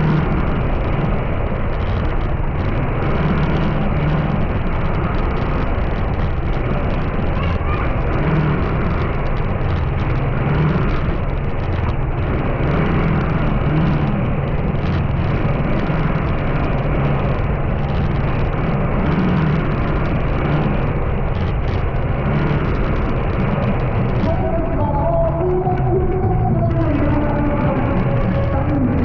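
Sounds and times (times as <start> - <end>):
road and wind noise: 0.0 - 29.0
vehicle engine hum: 0.0 - 29.0.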